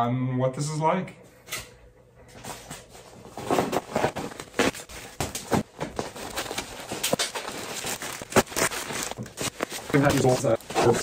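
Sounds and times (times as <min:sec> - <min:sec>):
bubble wrap crinkling: 0:03.4 - 0:11.0.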